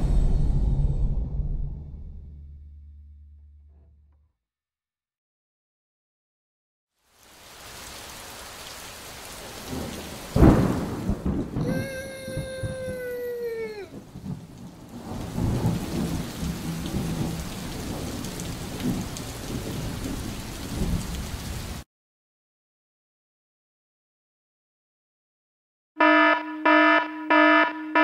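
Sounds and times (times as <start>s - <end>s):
rain hiss: 7.0s - 21.8s
rolling thunder: 9.6s - 21.8s
thunderclap: 9.6s - 21.8s
long pitched cry: 11.6s - 14.0s.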